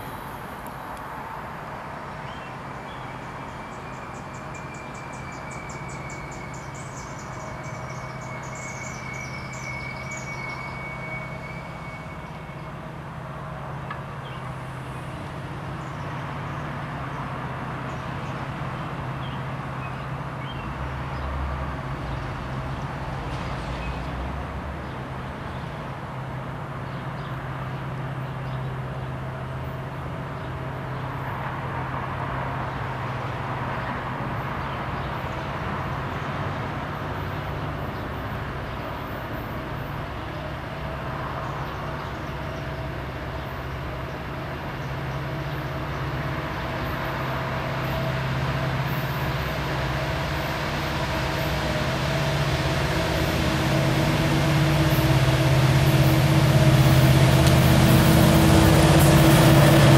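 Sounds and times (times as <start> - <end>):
diesel locomotive engine rumbling: 0.0 - 59.9
birds chirping: 2.2 - 12.8.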